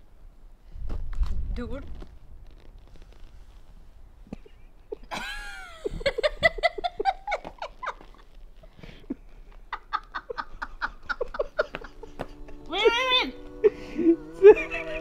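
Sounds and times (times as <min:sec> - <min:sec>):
person laughing: 0:04.9 - 0:08.2, 0:09.1 - 0:12.9, 0:13.6 - 0:15.0
high squeal sliding down: 0:11.8 - 0:15.0.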